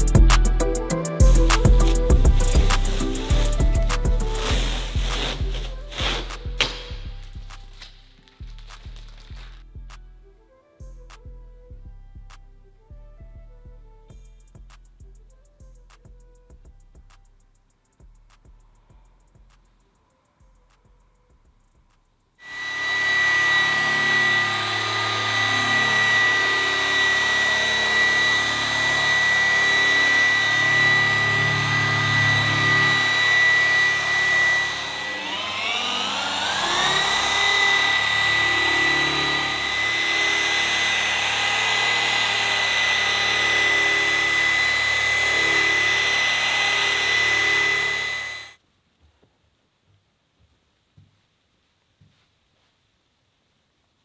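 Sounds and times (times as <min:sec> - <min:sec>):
polisher motor whine: 0:01.0 - 0:07.2, 0:22.4 - 0:48.6.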